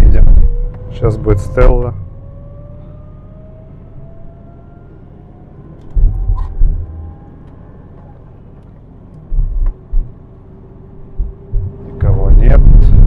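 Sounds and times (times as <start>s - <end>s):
heavy low thumps: 0.0s - 0.7s, 6.0s - 7.1s, 9.3s - 10.1s, 11.1s - 13.0s
car road and engine hum: 0.0s - 13.0s.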